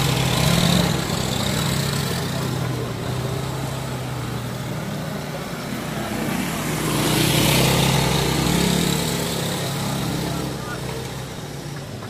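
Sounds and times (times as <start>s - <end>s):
road noise: 0.0s - 12.0s
vehicle engine running: 0.0s - 12.0s.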